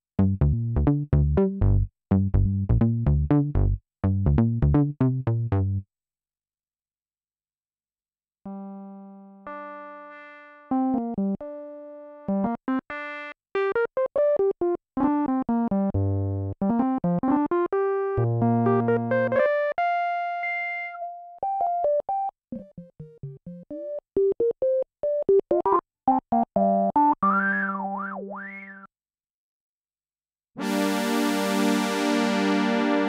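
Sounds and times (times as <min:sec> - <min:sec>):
synthesizer bass line: 0:18.2 - 0:19.7, 0:25.5 - 0:28.9.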